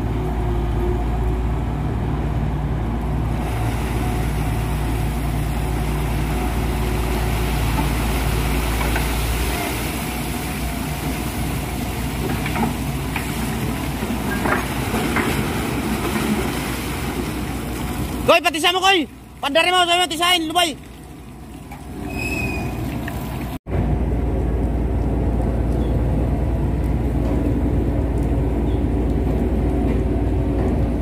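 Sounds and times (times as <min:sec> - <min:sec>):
diesel engine drone: 0:00.0 - 0:19.5, 0:23.5 - 0:31.0
water pouring and splashing: 0:03.2 - 0:23.6.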